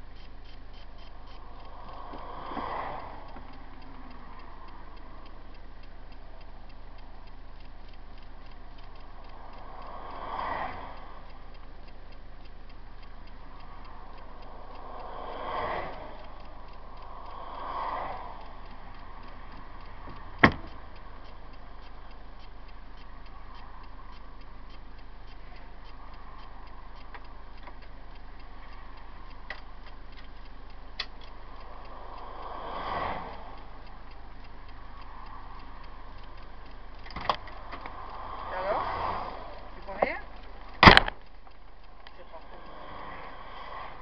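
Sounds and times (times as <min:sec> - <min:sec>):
fast even ticking: 0:00.0 - 0:44.0
road noise inside vehicle: 0:00.0 - 0:44.0
vehicles passing: 0:00.0 - 0:44.0
sharp click: 0:12.4 - 0:44.0.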